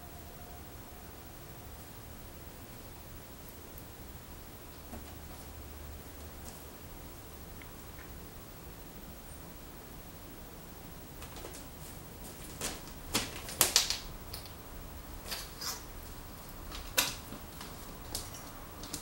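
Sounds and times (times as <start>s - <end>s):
plastic wrapping rustling: 11.2s - 14.6s.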